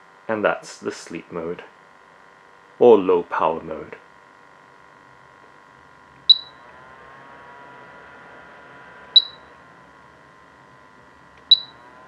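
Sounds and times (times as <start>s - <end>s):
dehumidifier fan humming: 0.0s - 12.0s
short high beeps: 6.3s - 6.6s, 9.2s - 9.5s, 11.5s - 11.8s.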